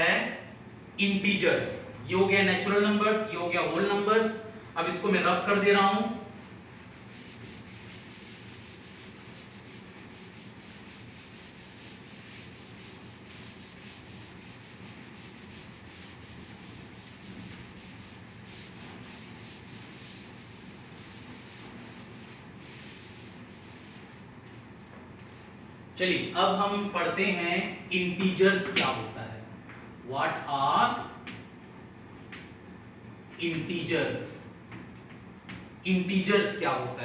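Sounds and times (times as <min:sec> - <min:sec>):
cloth wiping chalkboard: 0:03.2 - 0:25.6.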